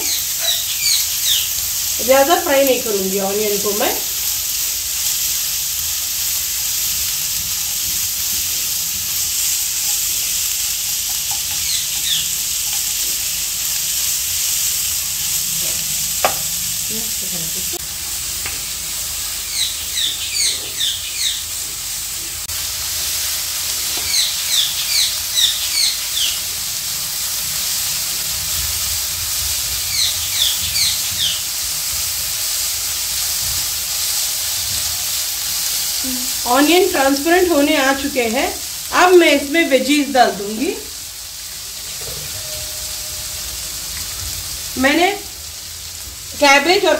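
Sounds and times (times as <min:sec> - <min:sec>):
high falling chirps: 0:00.0 - 0:02.6, 0:11.3 - 0:12.5, 0:19.4 - 0:21.5, 0:42.2 - 0:44.2
onions sizzling in oil: 0:00.0 - 0:46.9
spatula tap: 0:16.2 - 0:16.4.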